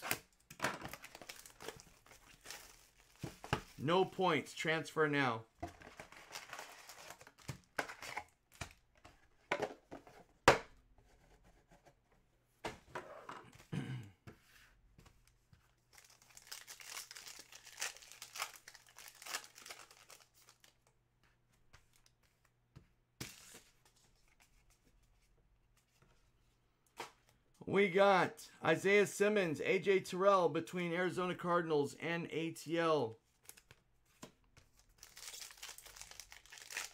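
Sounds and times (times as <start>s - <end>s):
foil wrappers crinkling and ripping: 0.9s - 3.2s, 6.1s - 8.2s, 16.0s - 20.8s, 34.8s - 36.9s.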